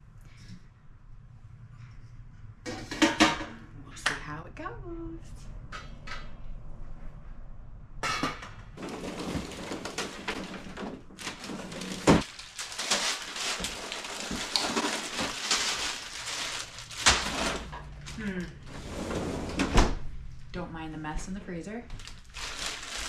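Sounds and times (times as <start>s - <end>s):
frozen bags crinkling: 8.8s - 18.4s, 21.9s - 23.0s.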